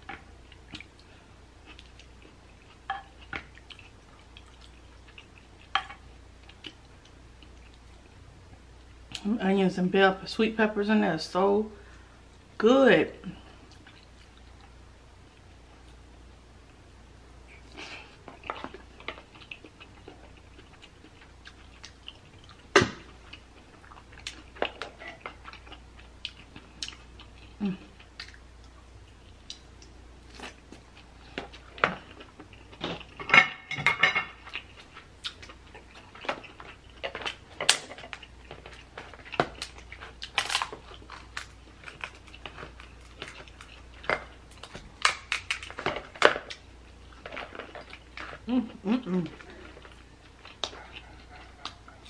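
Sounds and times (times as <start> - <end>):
person chewing: 0.1 - 8.1, 17.5 - 33.2, 34.3 - 52.0
crab shells cracking: 37.0 - 46.6.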